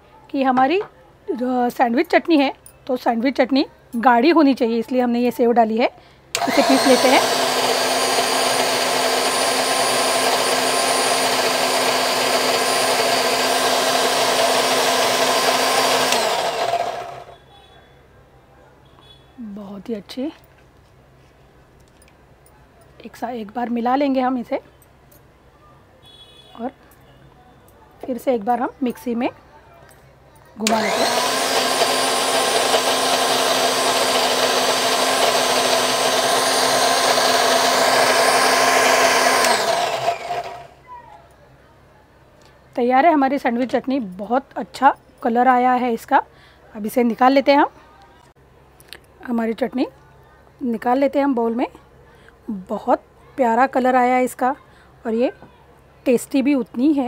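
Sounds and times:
mixer grinder running: 6.4s - 17.3s, 30.6s - 40.8s
motor winding down: 6.4s - 17.3s, 30.6s - 40.8s.

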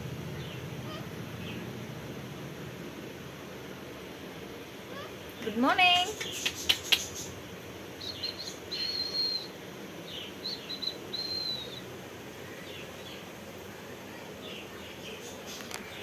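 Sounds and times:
parakeet whistled calls: 8.0s - 11.9s.

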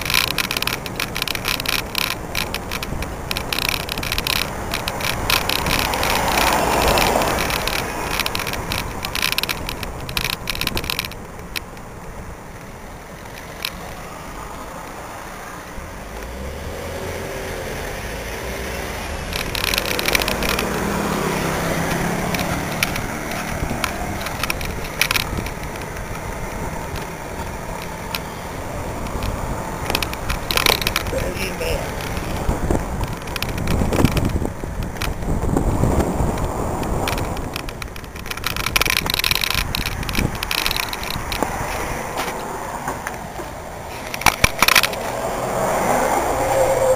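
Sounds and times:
camera mount rattling: 0.0s - 11.8s, 19.3s - 42.4s, 43.9s - 45.2s
car engines running: 0.0s - 46.9s
wind on microphone: 16.7s - 46.9s.

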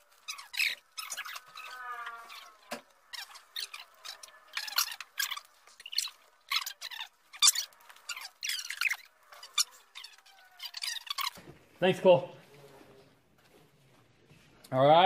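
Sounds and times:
sped-up eating crackles: 0.0s - 11.4s
squeaky high voices: 0.2s - 11.4s.

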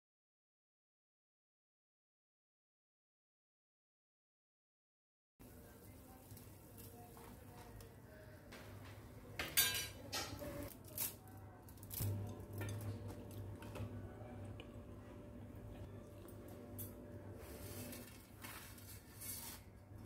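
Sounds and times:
metal utensil clinking on cookware: 9.4s - 11.1s, 11.9s - 13.6s
faint steady hum: 12.0s - 18.3s.

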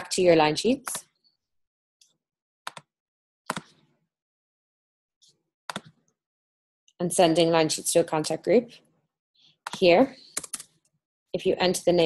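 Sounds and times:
computer mouse clicks: 2.0s - 2.9s, 3.5s - 3.8s, 5.7s - 6.0s, 9.7s - 10.9s.

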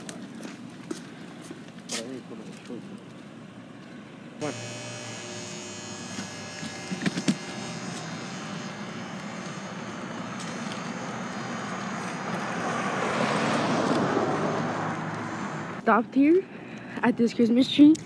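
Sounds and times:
passing car rush: 9.7s - 15.8s.

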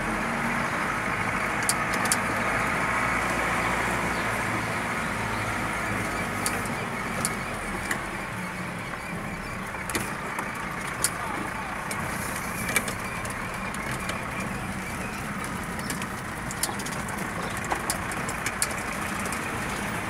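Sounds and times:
car engine and road noise: 0.0s - 20.0s
sharp clicks or rattles: 1.6s - 2.3s, 12.6s - 20.0s.

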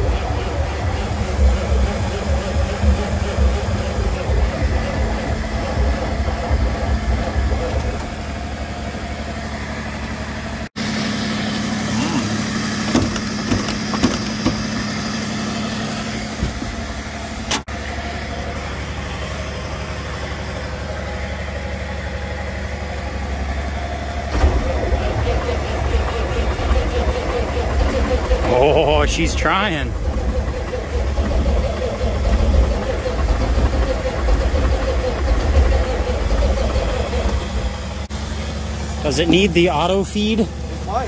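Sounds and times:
clunks and knocks: 0.0s - 8.3s, 12.8s - 14.7s
truck engine idling: 0.0s - 41.0s.

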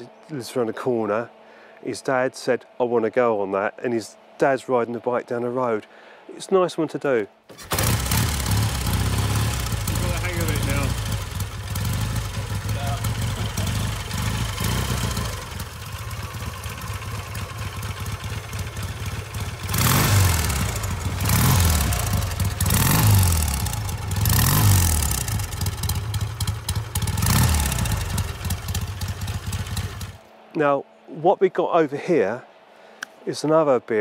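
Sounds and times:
motorcycle engine idling and revving: 7.5s - 30.2s.

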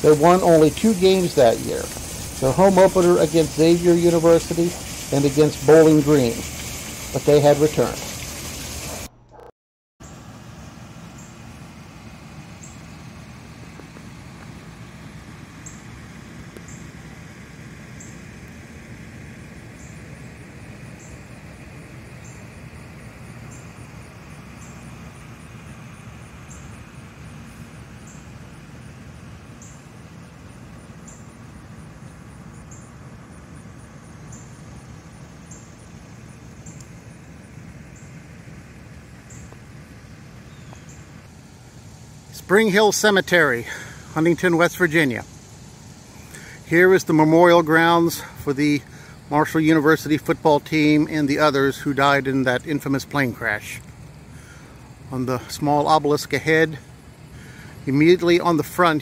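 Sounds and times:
low outdoor rumble: 0.0s - 9.5s, 10.1s - 59.0s
faint high ticks: 36.6s - 37.0s.

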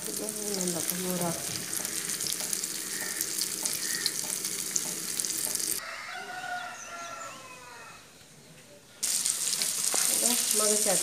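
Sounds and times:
fish sizzling in hot oil: 0.0s - 5.8s, 9.0s - 11.0s
rooster crowing: 2.8s - 4.2s, 5.8s - 8.1s.

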